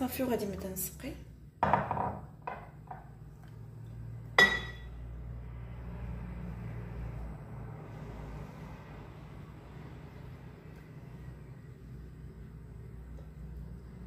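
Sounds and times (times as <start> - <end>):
sharp ringing clink: 4.4 - 4.9.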